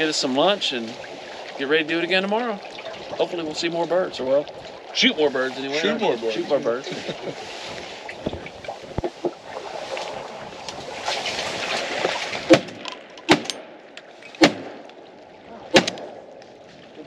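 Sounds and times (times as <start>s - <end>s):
wind and water hiss: 0.0s - 17.0s
sharp knocks: 12.0s - 13.6s, 14.4s - 14.8s.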